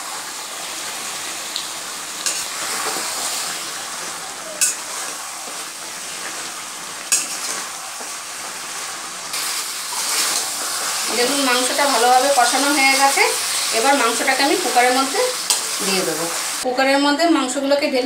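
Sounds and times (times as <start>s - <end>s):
meat sizzling in a pan: 0.0s - 16.7s
metal spatula scraping: 7.1s - 8.1s.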